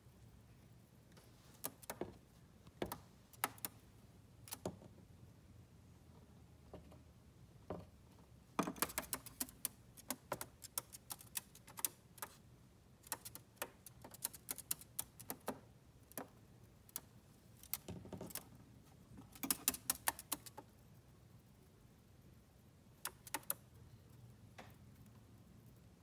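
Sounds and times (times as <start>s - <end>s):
bird toenails tapping on plastic: 1.6s - 3.8s, 8.6s - 12.4s, 13.0s - 18.5s, 19.2s - 20.7s, 23.0s - 23.6s.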